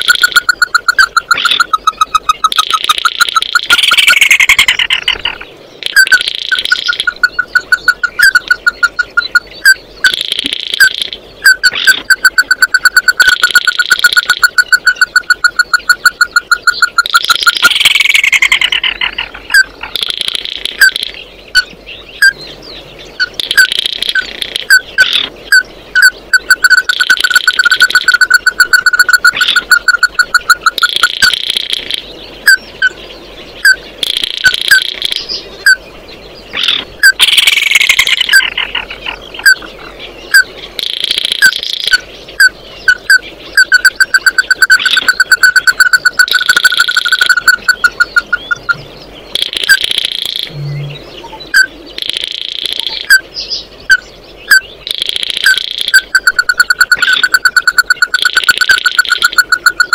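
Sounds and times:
crake calling rapid sharp notes: 0:43.0 - 0:48.8, 0:54.5 - 0:59.9.

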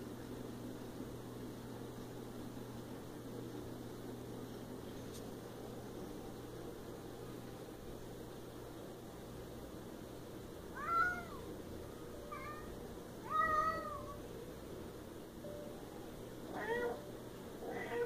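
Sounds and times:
cat meowing: 0:10.7 - 0:11.5, 0:12.3 - 0:14.2, 0:16.5 - 0:18.0.

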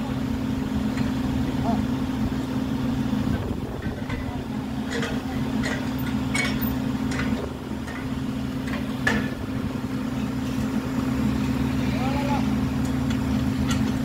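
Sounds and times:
drilling rig and compressor humming: 0:00.0 - 0:14.0
metal clinks on drill pipe: 0:03.8 - 0:09.5, 0:12.8 - 0:14.0.

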